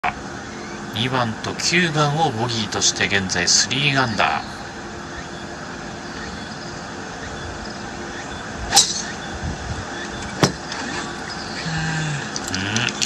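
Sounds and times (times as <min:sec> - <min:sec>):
outdoor background hiss: 0:00.0 - 0:13.0
golf ball struck off tee: 0:08.7 - 0:09.2.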